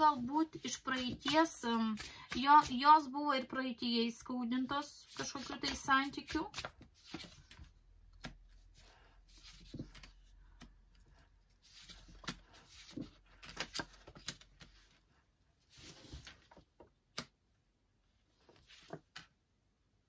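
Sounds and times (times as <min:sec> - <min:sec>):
cards rustling: 0:05.1 - 0:10.8, 0:11.6 - 0:14.9.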